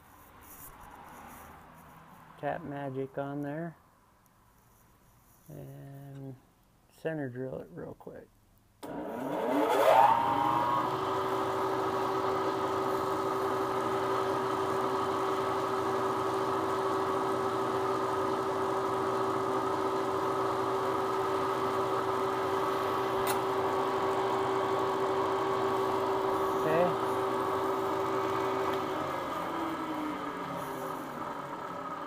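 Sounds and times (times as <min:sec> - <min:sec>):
mill spindle motor whine: 0:08.8 - 0:32.0.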